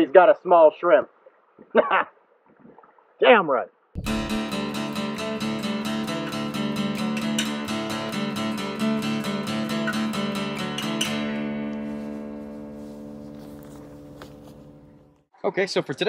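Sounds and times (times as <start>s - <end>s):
strummed acoustic guitar: 4.0s - 14.9s.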